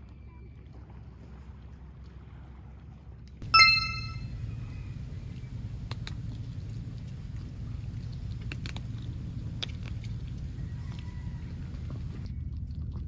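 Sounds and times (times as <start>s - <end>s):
steady low hum: 3.4s - 12.9s
dog crunching kibble: 5.6s - 13.0s.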